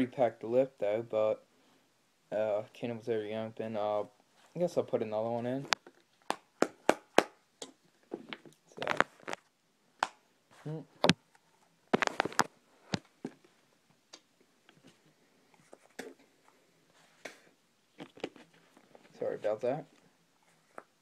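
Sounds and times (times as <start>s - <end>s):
tobacco can clicks and rustles: 8.4s - 9.5s.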